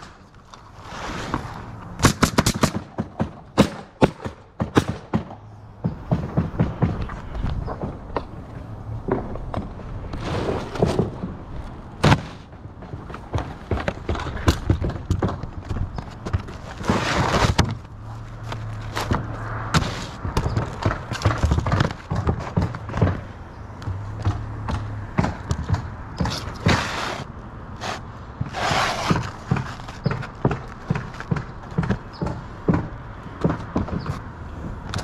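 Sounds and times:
shingles scraping rustle: 0:00.0 - 0:01.8, 0:10.0 - 0:23.2, 0:26.2 - 0:31.4
shingles knocking and thudding: 0:01.3 - 0:27.3, 0:28.3 - 0:35.0
footsteps on a roof: 0:04.6 - 0:35.0.

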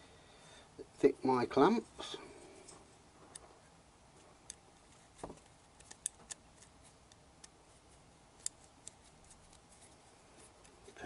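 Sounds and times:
small metallic clicks of a screw: 0:05.8 - 0:07.5.

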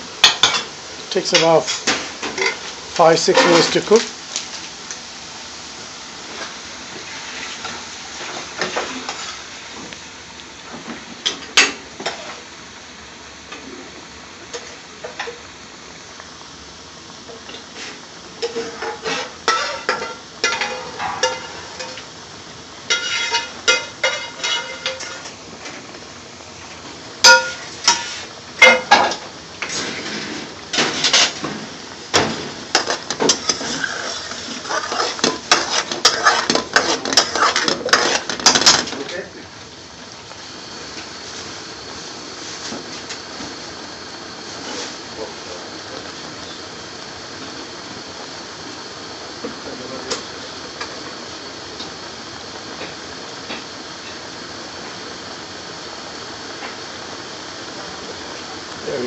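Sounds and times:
steady hiss: 0:00.0 - 0:59.0.

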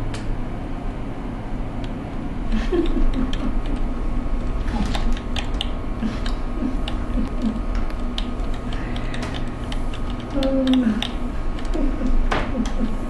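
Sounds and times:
electrical hum: 0:00.0 - 0:13.0
keyboard typing clicks: 0:02.7 - 0:03.9, 0:04.7 - 0:12.9.

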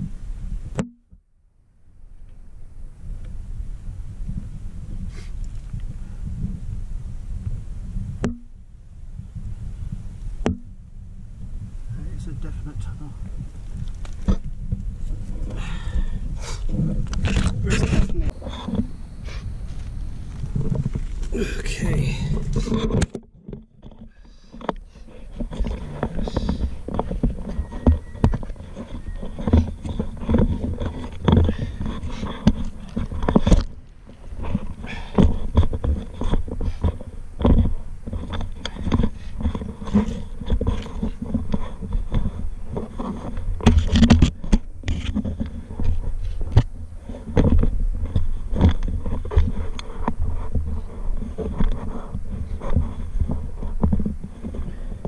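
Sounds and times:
soil and stones being dug: 0:11.5 - 0:55.0.

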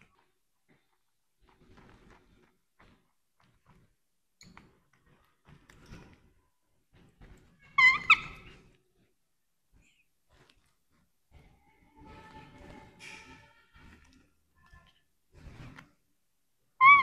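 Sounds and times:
baby monkey squeaking: 0:07.8 - 0:08.5, 0:16.8 - 0:17.0.

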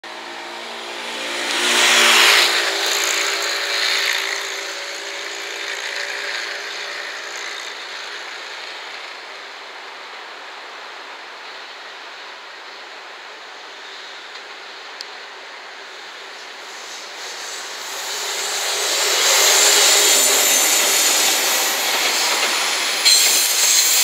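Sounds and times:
vehicle passing by: 0:00.1 - 0:06.6
train rolling: 0:00.1 - 0:10.4, 0:14.3 - 0:24.0.

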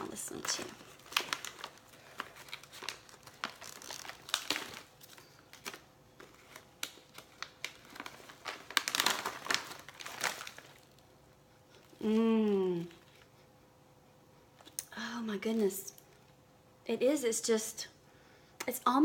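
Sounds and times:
plastic pouch crinkling: 0:00.0 - 0:11.1.

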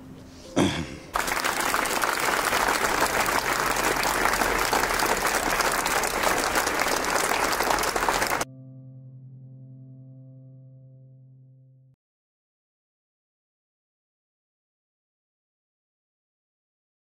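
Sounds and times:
crowd applauding: 0:01.1 - 0:08.5.

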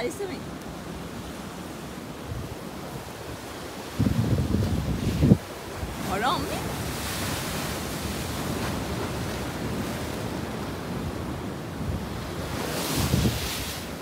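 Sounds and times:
waves breaking on rocks: 0:00.0 - 0:14.0
wind rumbling on microphone: 0:00.0 - 0:14.0.

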